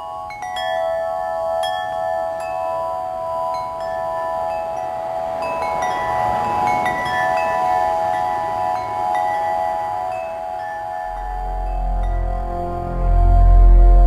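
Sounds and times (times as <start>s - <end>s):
wind chimes ringing: 0.0s - 13.0s
wind rushing: 3.5s - 14.0s.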